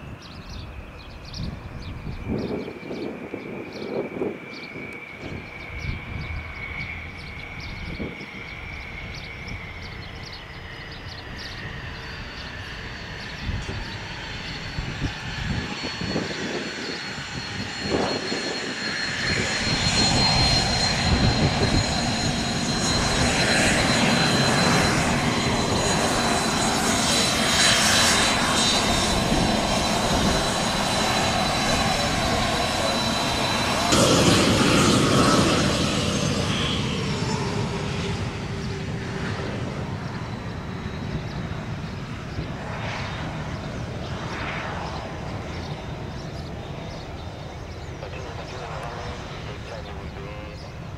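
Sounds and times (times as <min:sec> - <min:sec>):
jet turbine whine: 0:00.0 - 0:50.9.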